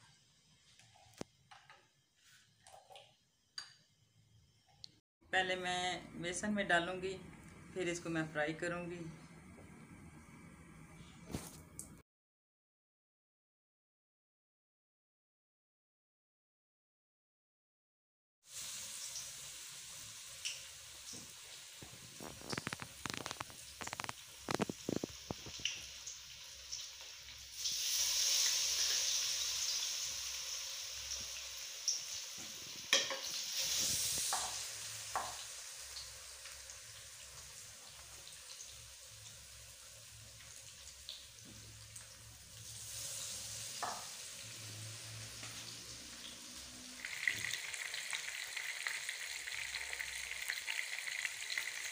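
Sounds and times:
fish frying in oil: 18.4s - 51.9s.

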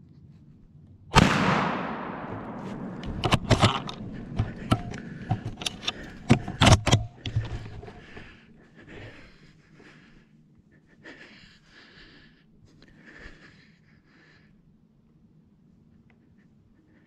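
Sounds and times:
gunshot echoing through woods: 1.1s - 5.4s
sharp knocks and clicks: 2.9s - 8.0s.

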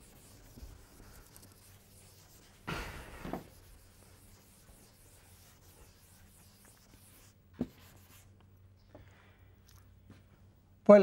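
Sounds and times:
duster rubbing on chalkboard: 0.0s - 8.3s.

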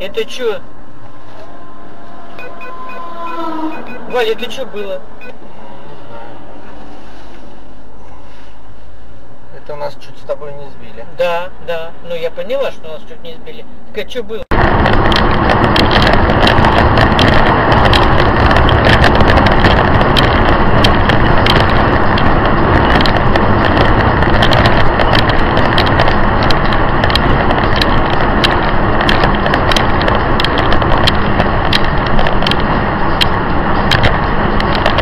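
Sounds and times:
car road noise at highway speed: 0.0s - 35.0s
sharp crackling clicks: 14.5s - 35.0s.

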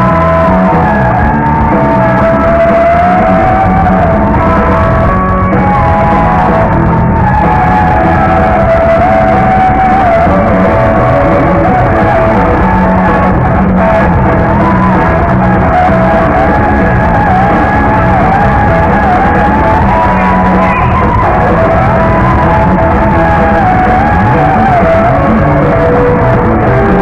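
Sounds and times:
lead guitar bending notes: 0.0s - 27.0s
live rock band: 0.0s - 27.0s.

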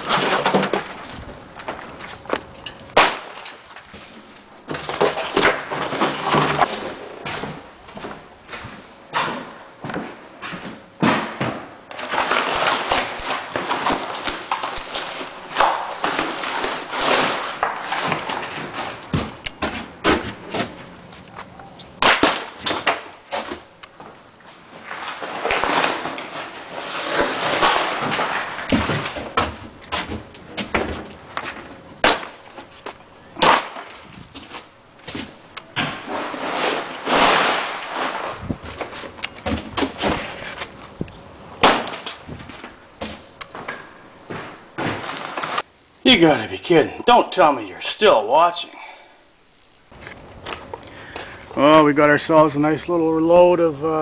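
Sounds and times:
drywall pieces scraping and cracking: 0.0s - 20.8s, 24.5s - 40.9s, 41.6s - 45.7s.

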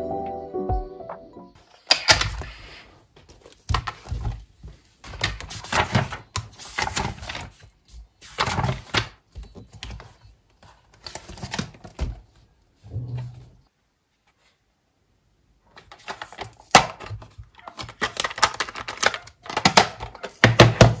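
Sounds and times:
paper pages rustling: 1.6s - 12.4s, 15.7s - 21.0s.

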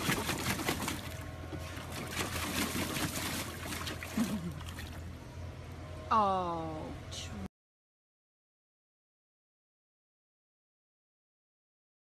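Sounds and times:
dog splashing in water: 0.0s - 5.0s
water sloshing and trickling: 0.0s - 5.2s.

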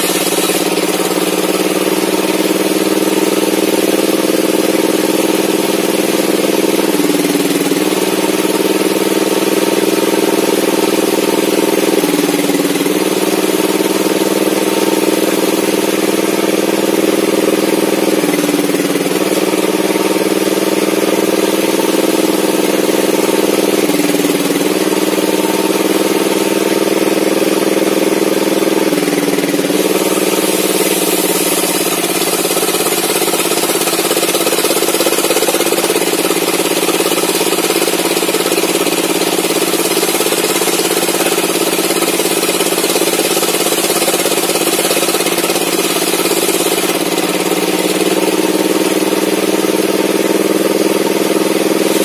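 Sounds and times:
table saw ripping a log: 0.0s - 52.0s
hissing cutting sound: 29.0s - 37.0s.

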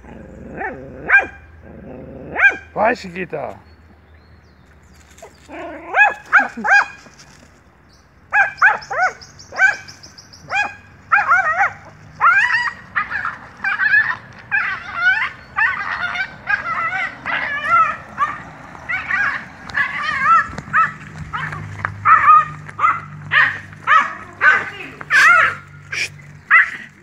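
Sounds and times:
dog yelping and whining: 5.2s - 7.0s, 8.4s - 26.9s.

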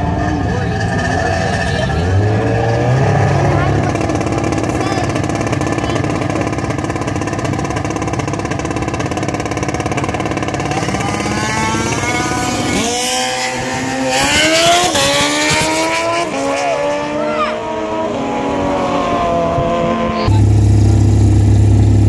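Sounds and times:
racing car launching and revving: 0.0s - 8.0s, 8.9s - 22.0s
racing car engines idling: 0.0s - 15.5s, 20.3s - 22.0s.

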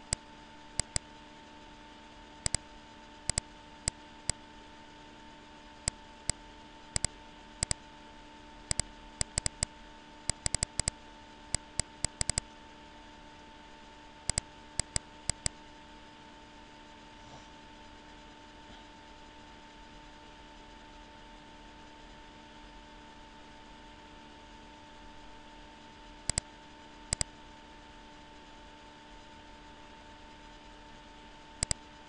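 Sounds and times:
faint hum and hiss: 0.0s - 32.0s
computer mouse clicking: 0.8s - 1.1s, 2.4s - 2.6s, 3.3s - 4.4s, 5.8s - 7.8s, 8.7s - 9.7s, 10.3s - 12.5s, 14.3s - 15.6s, 26.3s - 26.5s, 27.1s - 27.3s, 31.6s - 31.8s.

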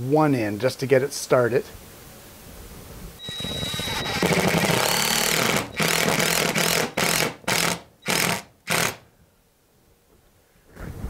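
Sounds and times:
power driver driving screw into wood: 3.2s - 9.0s.

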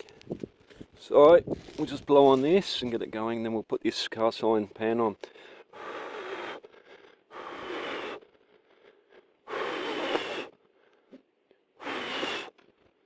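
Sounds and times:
person blowing on fire: 5.7s - 10.6s, 11.8s - 12.7s.

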